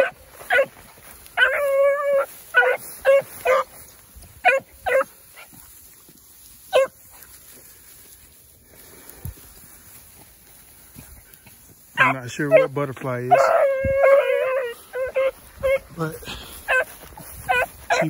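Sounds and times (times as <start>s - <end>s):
puppies baying and yelping: 0.0s - 5.6s, 6.6s - 7.1s, 11.9s - 18.0s.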